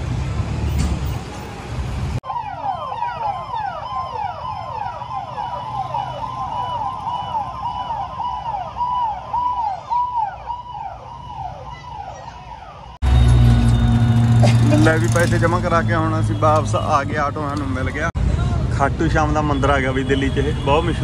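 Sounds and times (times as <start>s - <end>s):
electronic siren yelping: 2.2s - 13.0s.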